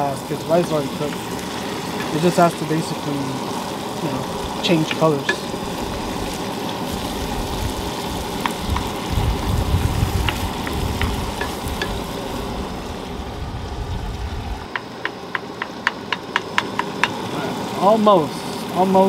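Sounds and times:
meat sizzling in a frying pan: 0:00.0 - 0:13.1, 0:14.6 - 0:19.0
wooden spoon clicking on pan: 0:14.7 - 0:17.2.

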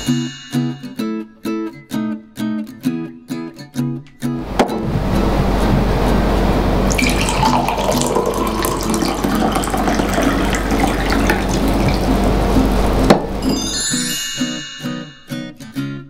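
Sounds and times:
tea pouring into cup: 0:06.9 - 0:12.9.

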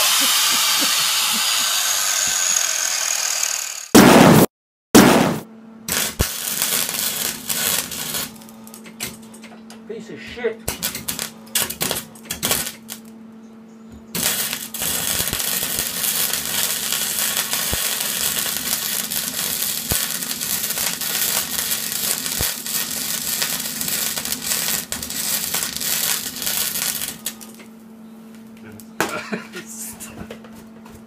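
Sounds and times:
welding arc crackling: 0:00.0 - 0:03.9, 0:05.2 - 0:09.2, 0:10.6 - 0:13.1, 0:14.1 - 0:27.7.

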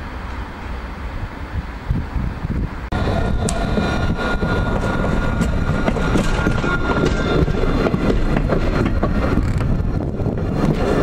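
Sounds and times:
tram wheels rumbling on rails: 0:00.0 - 0:11.0
wheels clicking on track: 0:03.0 - 0:11.0.

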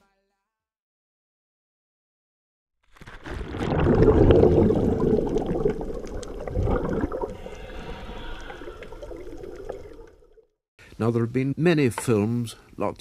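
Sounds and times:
water rushing and gurgling: 0:03.3 - 0:10.4.

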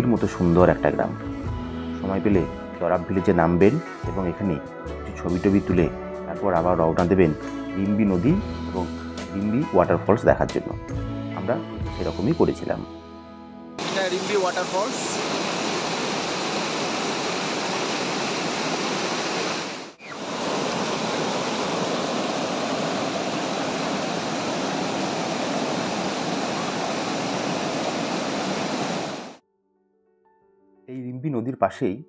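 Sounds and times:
river rushing over boulders: 0:13.8 - 0:29.4.

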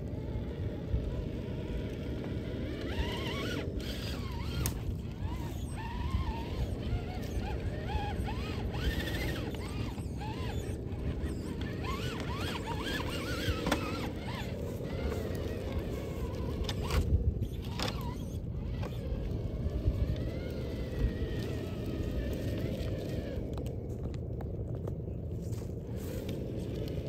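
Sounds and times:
electric motor whining: 0:00.0 - 0:23.8
steady low rumble: 0:00.0 - 0:27.0.

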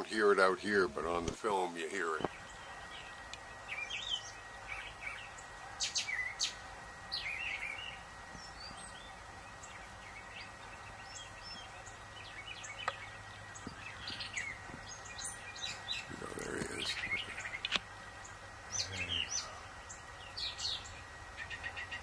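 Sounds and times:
songbirds chirping: 0:00.0 - 0:22.0
bird warbled phrase: 0:15.7 - 0:17.6, 0:18.7 - 0:20.8.

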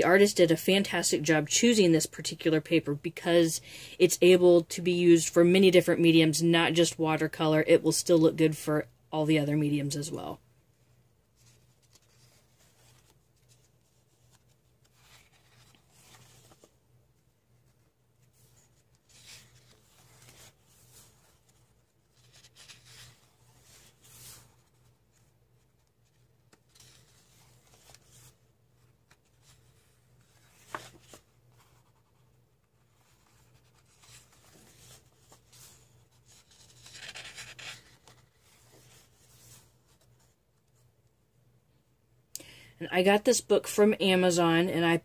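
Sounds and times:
paper pages rustling: 0:11.3 - 0:40.9.

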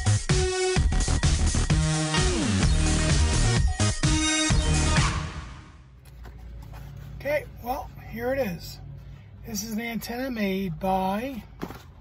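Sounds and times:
electronic music with steady beat: 0:00.0 - 0:05.8.

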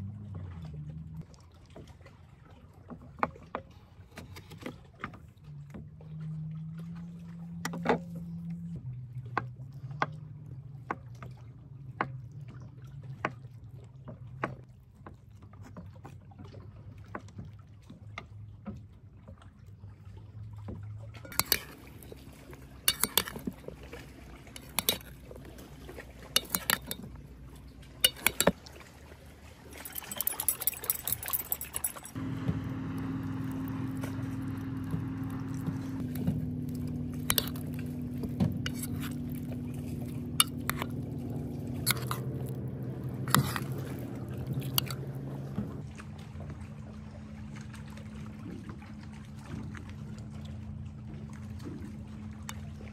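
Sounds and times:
metal spoon scraping and clinking: 0:21.3 - 0:22.2, 0:22.9 - 0:23.5, 0:24.6 - 0:25.2, 0:26.3 - 0:27.1, 0:28.0 - 0:28.6, 0:29.8 - 0:32.2, 0:36.0 - 0:45.1
steady low hum: 0:29.4 - 0:52.9.

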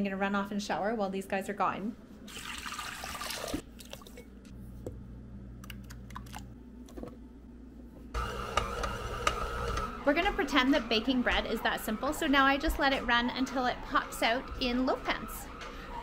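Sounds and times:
liquid pouring into bowl: 0:02.3 - 0:04.3
faint hum: 0:04.2 - 0:08.2.

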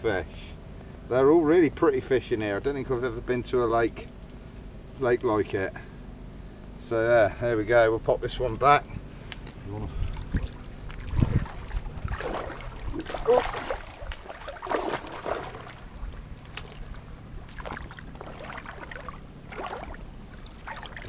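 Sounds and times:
water splashing around wading legs: 0:09.4 - 0:21.0.

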